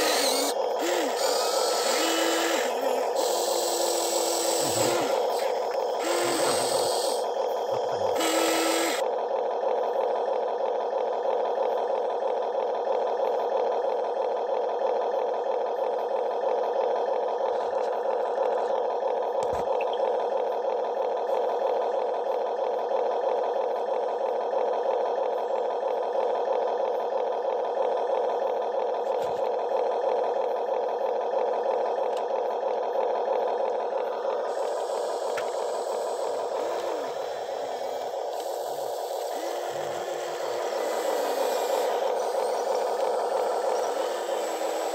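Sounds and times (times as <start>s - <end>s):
small electric motors whirring: 0.0s - 9.1s, 31.9s - 44.9s.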